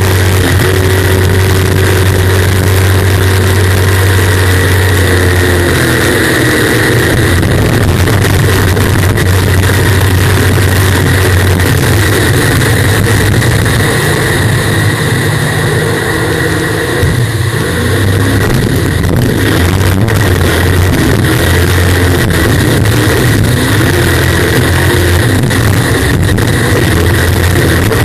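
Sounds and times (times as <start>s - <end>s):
jet boat engine at high power: 0.0s - 28.0s.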